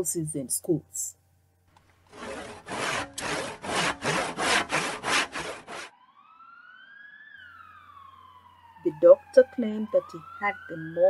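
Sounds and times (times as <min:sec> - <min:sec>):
hand saw cutting wood: 0:01.8 - 0:05.9
siren rising and falling: 0:05.7 - 0:11.0.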